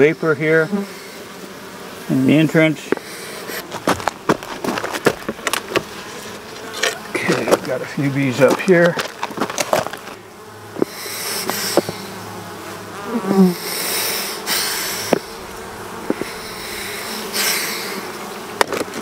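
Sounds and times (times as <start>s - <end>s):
bee buzzing close by: 0.0s - 19.0s
bees buzzing: 0.0s - 19.0s
short hisses: 13.4s - 15.4s, 16.0s - 18.1s.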